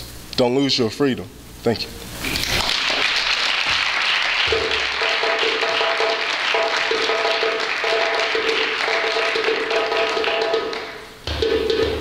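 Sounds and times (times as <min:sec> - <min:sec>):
audience applauding: 0:02.4 - 0:11.1.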